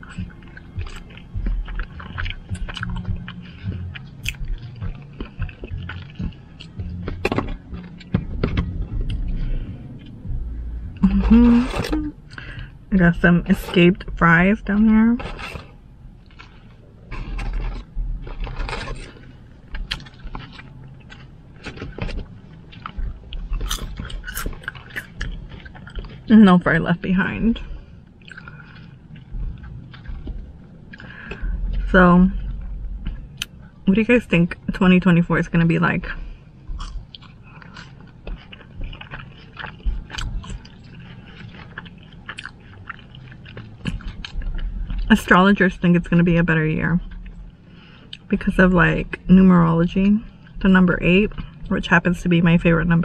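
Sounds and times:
mouth sounds of eating: 0.0s - 14.4s
person chewing food: 0.0s - 33.9s, 36.0s - 46.2s, 47.0s - 48.3s, 50.2s - 51.7s.

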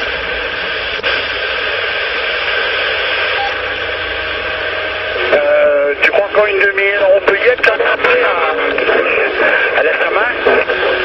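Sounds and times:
radio static hiss: 0.0s - 11.0s
voice over radio: 5.2s - 11.0s.

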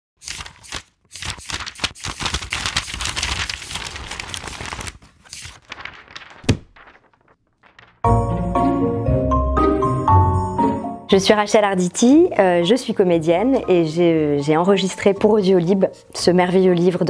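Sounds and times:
paper crinkling: 0.2s - 8.1s
music jingle: 8.1s - 11.2s.

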